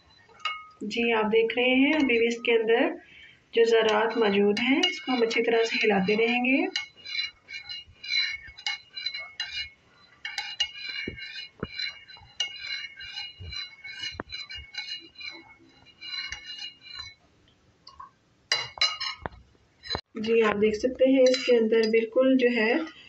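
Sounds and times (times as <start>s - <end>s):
metal spoon clinking in plastic bowl: 0.4s - 0.8s, 18.5s - 22.1s.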